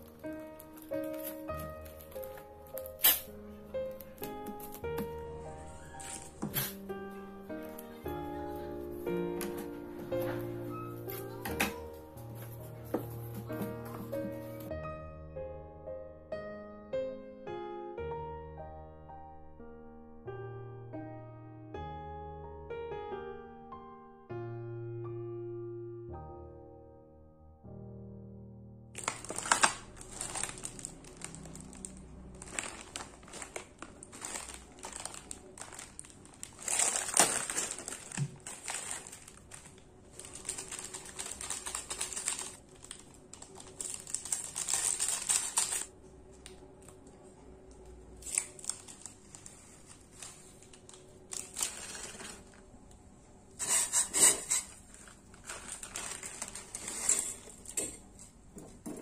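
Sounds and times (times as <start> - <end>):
plastic packets crinkling and tearing: 0.0 - 6.9, 29.0 - 47.2, 48.1 - 52.7, 53.6 - 58.0.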